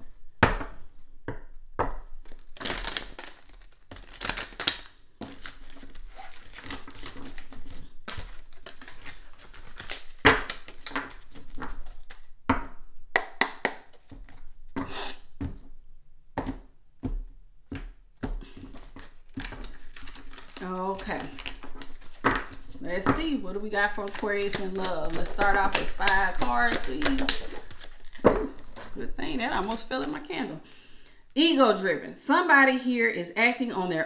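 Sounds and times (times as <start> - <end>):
cards shuffled by hand: 2.2 - 12.3, 18.4 - 30.2.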